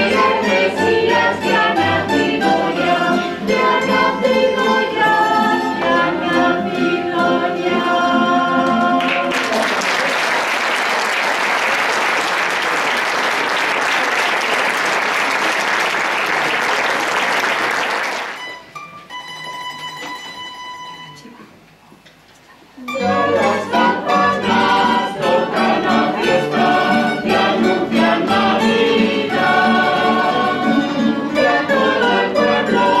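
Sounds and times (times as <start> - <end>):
choir singing a carol: 0.0 - 9.4, 22.9 - 33.0
audience applause: 9.0 - 18.5.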